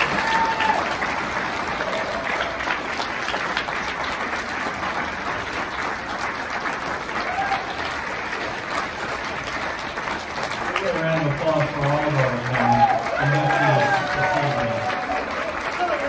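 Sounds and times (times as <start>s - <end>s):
audience applauding: 0.0s - 16.0s
voices in crowd: 10.8s - 16.0s.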